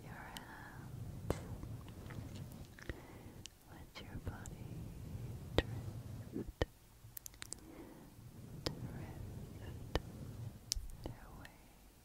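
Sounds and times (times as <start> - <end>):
soft rustle on windscreen: 0.6 - 2.7.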